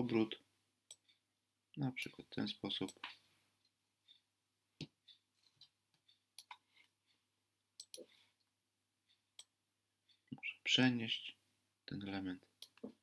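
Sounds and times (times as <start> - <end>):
computer mouse clicks: 7.8 - 8.1.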